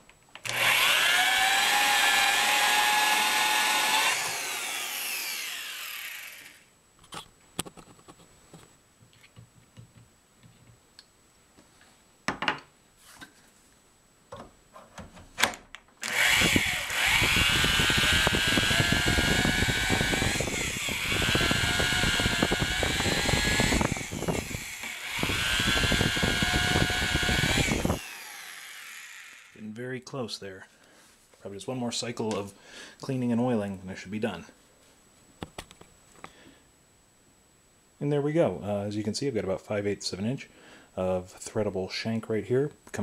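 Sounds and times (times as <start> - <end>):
electric drill cutting whine: 0.4 - 6.7, 16.0 - 29.6.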